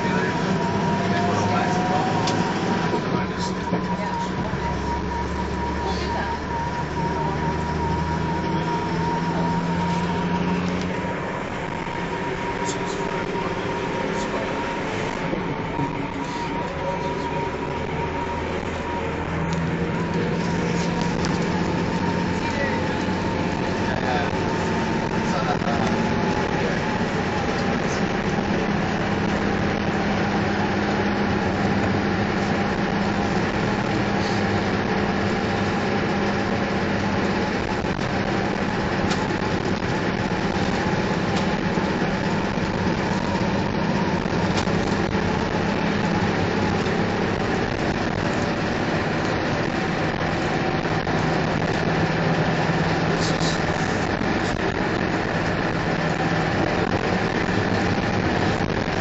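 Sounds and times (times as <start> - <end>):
vehicle engine and road noise: 0.0 - 59.0.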